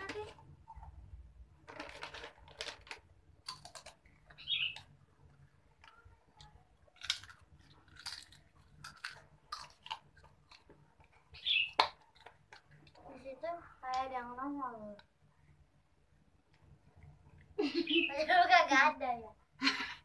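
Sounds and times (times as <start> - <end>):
person chewing snack food: 3.4 - 13.0.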